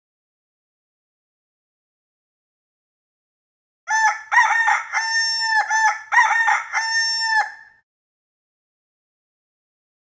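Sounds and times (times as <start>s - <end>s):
rooster crowing: 3.9s - 7.8s.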